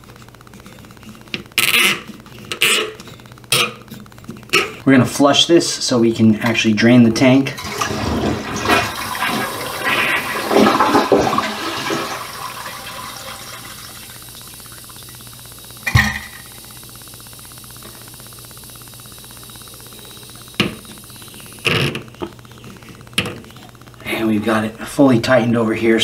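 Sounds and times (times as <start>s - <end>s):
toilet flushing: 7.6s - 15.2s.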